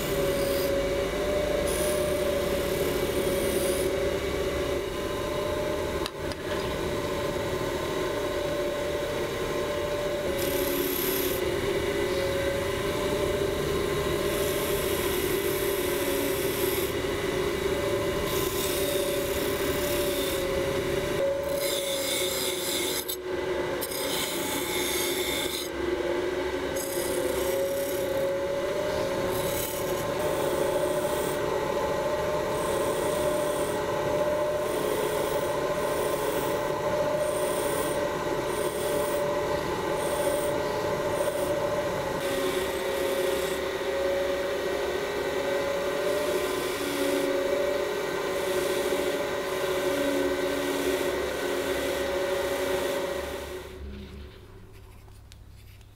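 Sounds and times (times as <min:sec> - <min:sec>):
bench grinder motor hum: 0:00.0 - 0:54.3
wire wheel scratching metal: 0:18.2 - 0:23.2, 0:23.8 - 0:25.8, 0:28.9 - 0:31.5, 0:32.3 - 0:43.8.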